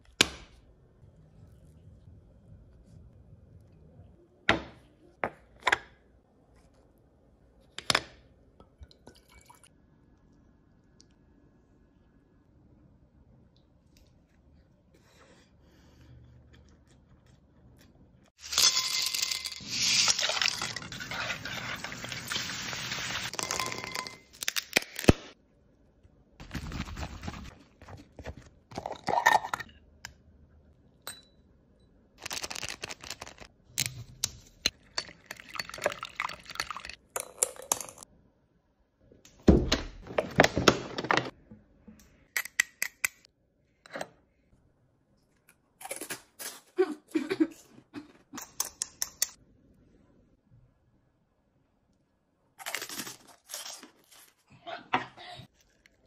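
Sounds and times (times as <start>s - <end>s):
crisp shells crunching: 32.2s - 33.5s.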